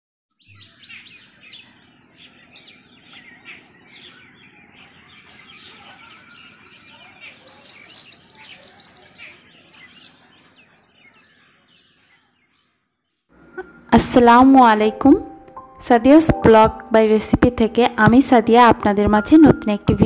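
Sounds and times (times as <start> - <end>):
small birds chirping: 0.3 - 14.6
low background noise: 13.2 - 20.0.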